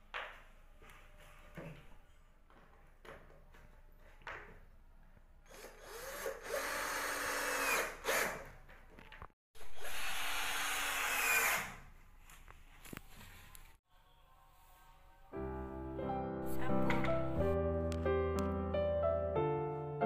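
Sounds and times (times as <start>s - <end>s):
power drill running: 5.5s - 8.4s, 9.6s - 11.8s.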